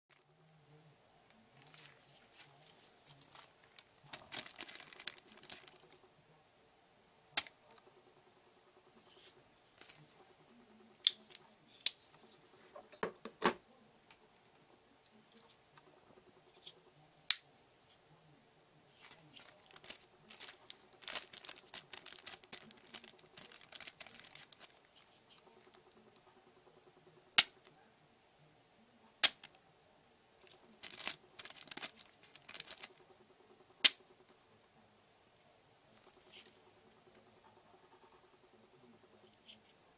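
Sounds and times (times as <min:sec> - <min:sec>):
soft rustling from handling: 0:01.3 - 0:06.0, 0:18.9 - 0:25.7, 0:30.4 - 0:33.0.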